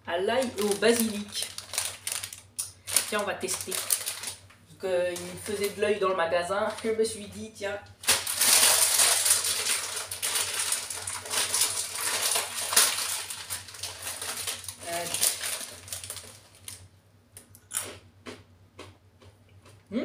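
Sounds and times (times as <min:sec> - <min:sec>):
plastic snack bag crinkling: 0:00.2 - 0:05.9, 0:06.6 - 0:07.2, 0:08.0 - 0:16.9.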